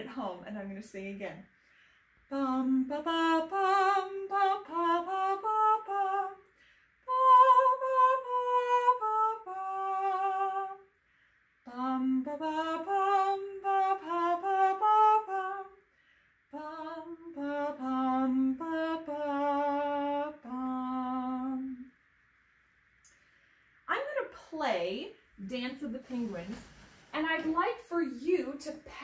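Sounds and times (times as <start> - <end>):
woman singing unaccompanied: 2.3 - 6.4, 7.1 - 10.9, 11.7 - 15.8, 16.5 - 21.9.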